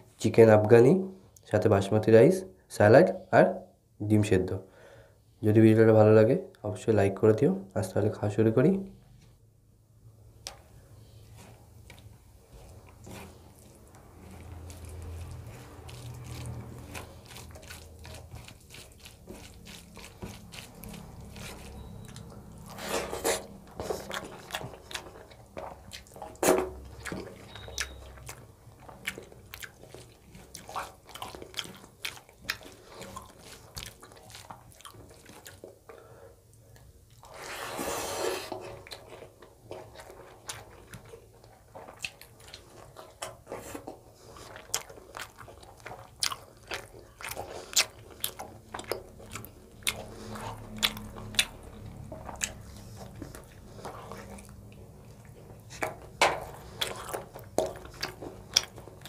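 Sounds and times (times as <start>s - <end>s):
person chewing: 10.4s - 59.0s
fingers squelching rice and gravy: 11.4s - 35.8s, 38.6s - 59.0s.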